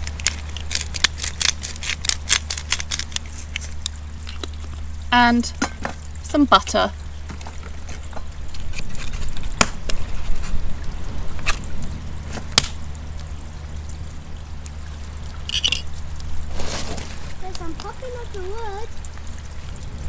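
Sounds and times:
burning wood popping: 0:00.0 - 0:04.9, 0:07.2 - 0:10.6, 0:11.3 - 0:12.9
campfire crackling: 0:00.0 - 0:20.0
steady low rumble: 0:03.2 - 0:20.0.

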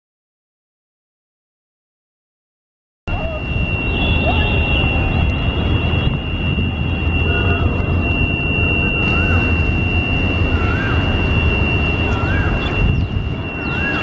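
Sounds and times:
high-pitched whine: 0:03.1 - 0:14.0
rising-and-falling whistle: 0:03.1 - 0:14.0.

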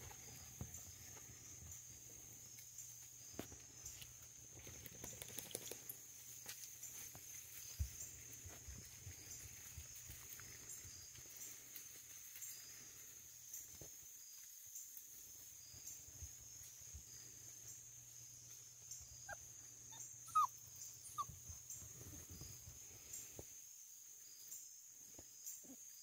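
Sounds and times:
puppy whimpering: 0:19.3 - 0:21.4.

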